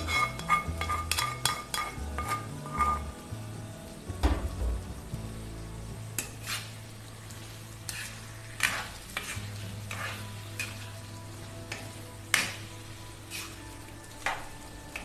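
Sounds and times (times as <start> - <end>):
spatula scraping a pan: 0.0 - 3.2, 6.2 - 11.1, 11.7 - 14.4
food sizzling in a pan: 0.0 - 15.0.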